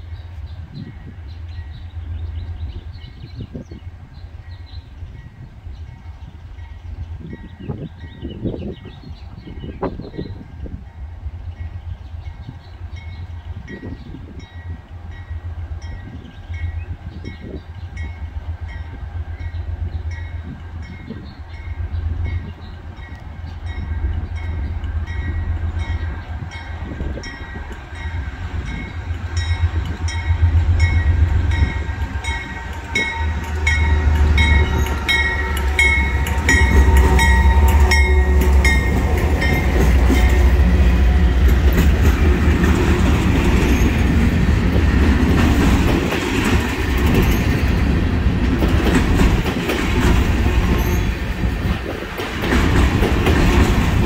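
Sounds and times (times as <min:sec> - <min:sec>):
diesel locomotive engine rumble: 0:00.0 - 0:54.0
freight cars clattering on rails: 0:23.8 - 0:54.0.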